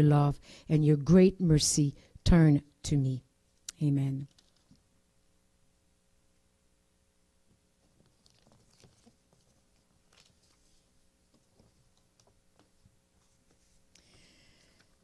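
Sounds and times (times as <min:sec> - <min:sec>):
faint steady hum: 0:00.0 - 0:15.0
paper sheets rustling: 0:08.0 - 0:12.1.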